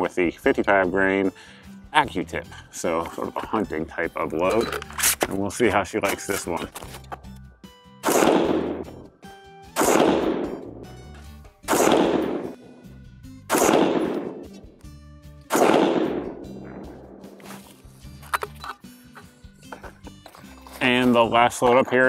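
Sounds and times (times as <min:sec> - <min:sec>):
rifle gunshots: 0:08.0 - 0:08.9, 0:09.8 - 0:10.7, 0:11.7 - 0:12.6, 0:13.5 - 0:14.5, 0:15.5 - 0:17.2.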